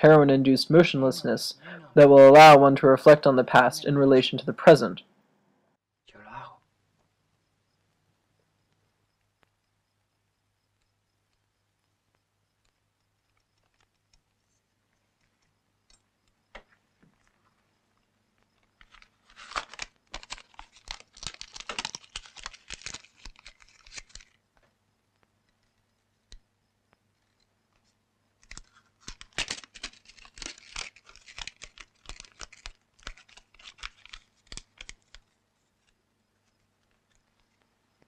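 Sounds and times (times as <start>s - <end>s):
faint steady hum: 0.0s - 38.0s
paper crinkling: 18.7s - 24.4s, 27.2s - 37.6s.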